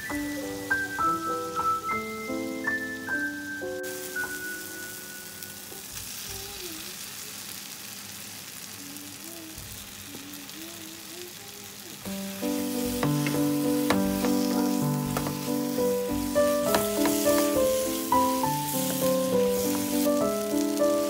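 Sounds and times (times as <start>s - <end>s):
masala sizzling in oil: 0.0s - 21.0s
wooden spatula clicking in pan: 13.0s - 15.5s, 16.6s - 17.6s.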